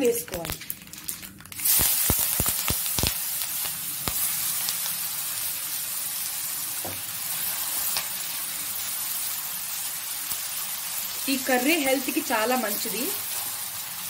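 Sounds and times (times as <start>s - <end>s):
leaves sizzling in hot oil: 0.0s - 14.0s.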